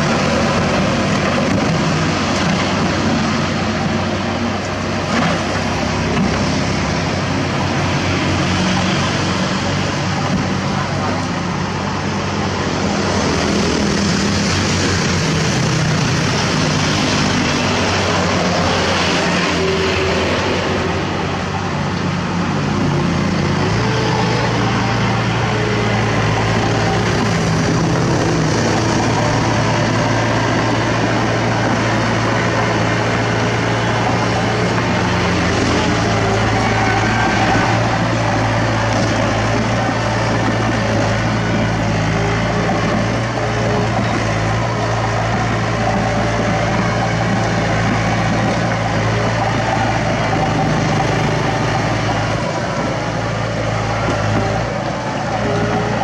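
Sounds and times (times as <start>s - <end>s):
heavy diesel engines running: 0.0s - 56.0s.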